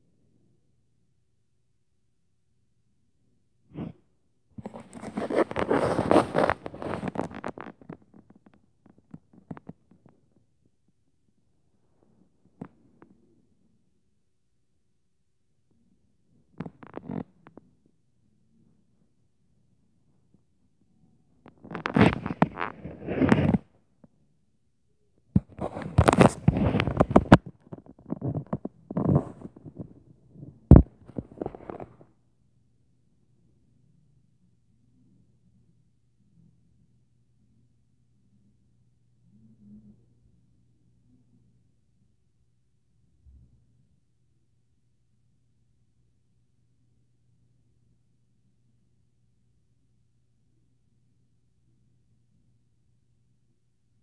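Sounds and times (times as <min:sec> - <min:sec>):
phone rustling against fabric: 0:04.6 - 0:10.1, 0:21.5 - 0:23.7, 0:25.4 - 0:32.1.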